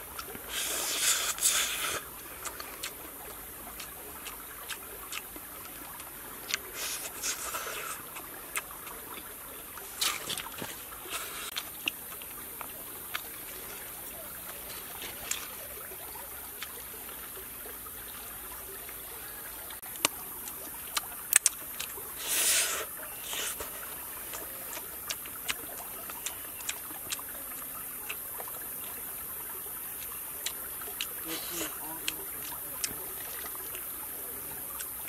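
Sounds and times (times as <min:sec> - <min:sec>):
stream trickling: 0:00.0 - 0:35.0
person chewing and lip smacking: 0:00.1 - 0:13.3, 0:19.8 - 0:28.6, 0:30.0 - 0:33.8.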